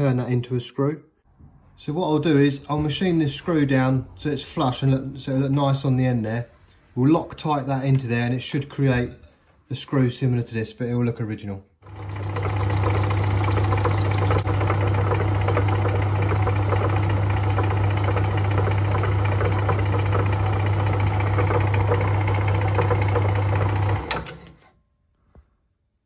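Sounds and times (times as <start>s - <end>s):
metal lathe running: 11.8s - 24.5s.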